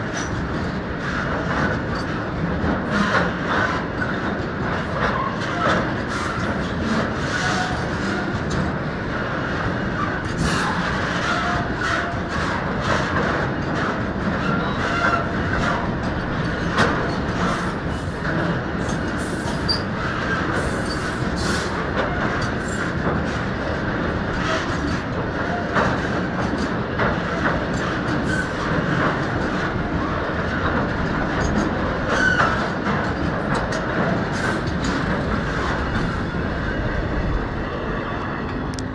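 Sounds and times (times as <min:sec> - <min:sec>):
train wheels rumbling on rail: 0:00.0 - 0:38.9
wheels clattering over rail joints: 0:10.0 - 0:37.3.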